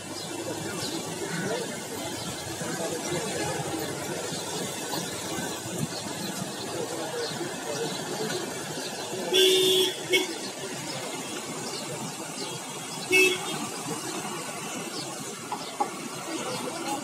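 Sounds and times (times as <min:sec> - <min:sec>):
street traffic: 0:00.0 - 0:17.0
vehicle horns honking: 0:09.3 - 0:10.5, 0:13.1 - 0:13.8.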